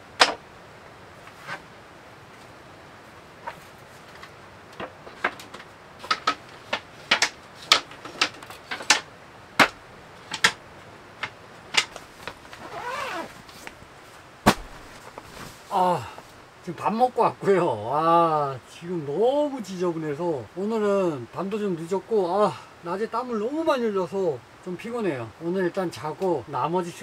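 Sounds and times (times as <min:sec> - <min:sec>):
wooden shelf boards knocking: 0:00.1 - 0:00.4, 0:04.8 - 0:10.6.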